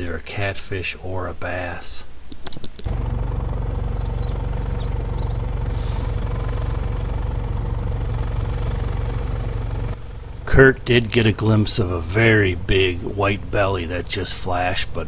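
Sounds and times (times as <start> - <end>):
generator and outboard motor drone: 2.9 - 15.0.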